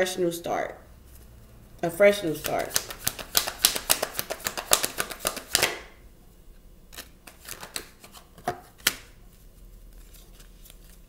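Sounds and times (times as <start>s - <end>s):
cards being shuffled: 2.3s - 5.9s, 6.9s - 11.0s
cards snapping and tapping on table: 2.4s - 5.9s, 7.0s - 9.1s.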